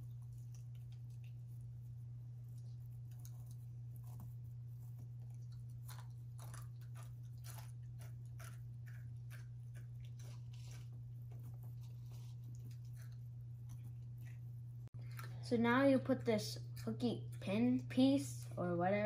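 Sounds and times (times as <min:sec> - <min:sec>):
steady low hum: 0:00.0 - 0:19.0
clicks and crackles of handling: 0:02.5 - 0:15.3.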